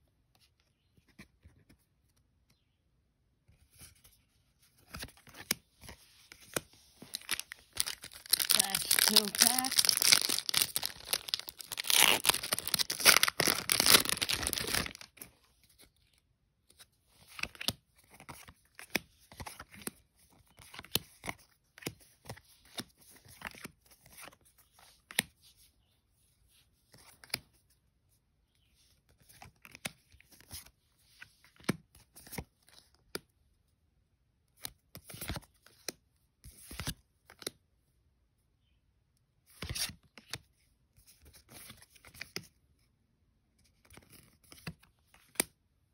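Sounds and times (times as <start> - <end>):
wrapper tearing and crinkling: 7.1 - 15.1.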